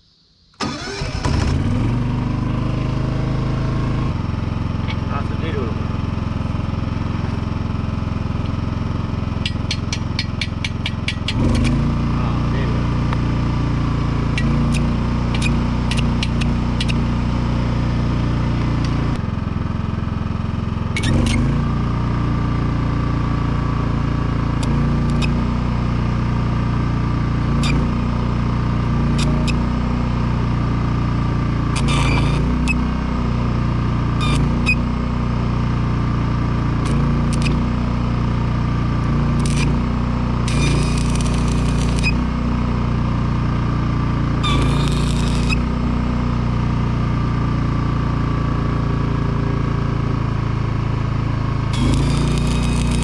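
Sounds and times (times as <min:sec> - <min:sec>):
welder engine running: 0:00.6 - 0:53.0
welding rod clicking on steel: 0:09.4 - 0:11.8, 0:14.4 - 0:17.0, 0:25.1 - 0:25.3, 0:37.3 - 0:37.5, 0:39.4 - 0:39.7, 0:40.5 - 0:42.1, 0:44.4 - 0:45.6, 0:51.8 - 0:53.0.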